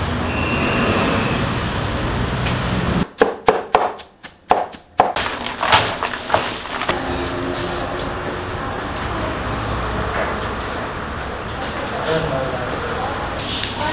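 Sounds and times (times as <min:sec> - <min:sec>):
knife chopping onions on wood: 0:03.1 - 0:06.6.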